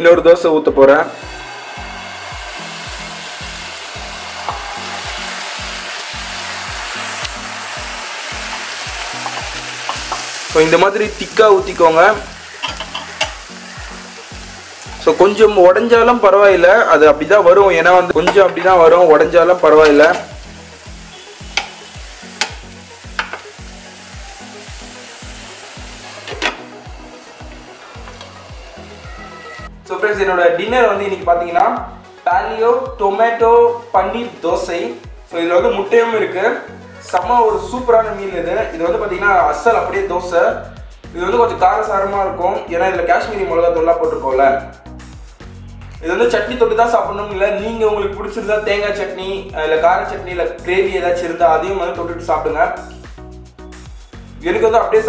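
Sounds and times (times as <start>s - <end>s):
background music with low beat: 0.0s - 55.0s
batter sizzling on a pan: 1.2s - 16.5s, 17.5s - 29.8s.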